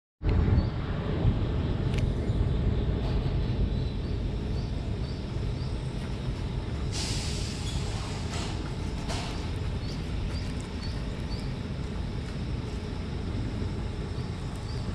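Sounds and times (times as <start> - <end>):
low outdoor rumble: 0.2 - 14.9.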